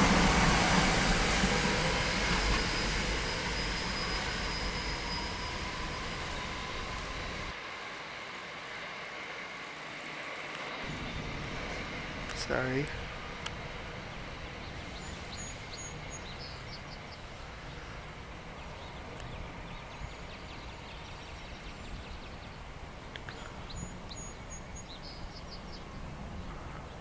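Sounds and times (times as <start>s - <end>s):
low rumble with hiss: 10.9s - 27.0s
small birds chirping: 12.3s - 27.0s.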